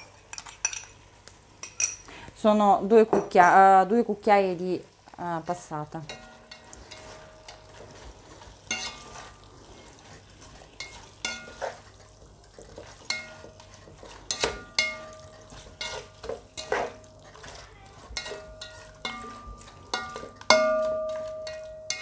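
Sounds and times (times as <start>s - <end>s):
faint sizzle: 0.0s - 22.0s
spatula scraping metal pot: 5.5s - 22.0s.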